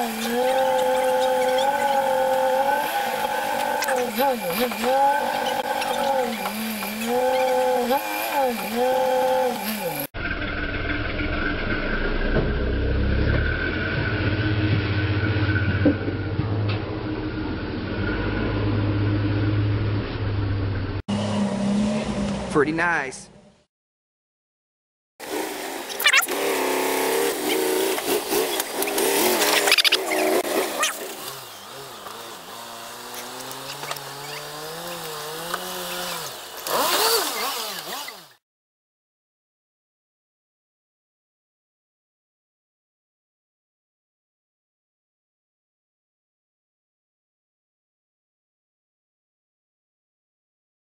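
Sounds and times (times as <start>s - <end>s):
engine running under load: 0.0s - 22.6s, 25.2s - 38.4s.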